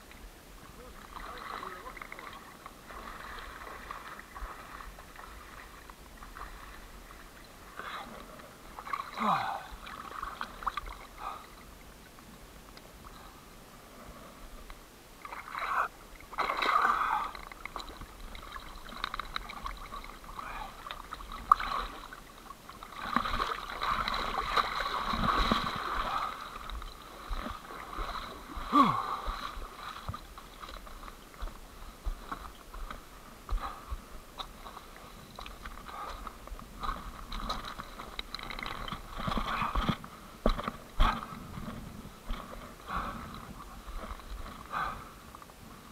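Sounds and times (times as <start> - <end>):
water splashing from wading: 0.8 - 8.1, 8.7 - 11.6, 15.2 - 31.5.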